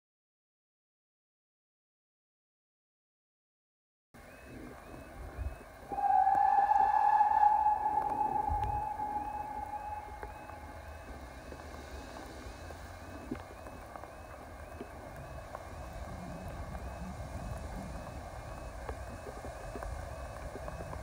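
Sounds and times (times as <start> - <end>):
wind rumble on microphone: 4.5 - 21.0
level crossing alarm warbling: 5.9 - 11.7.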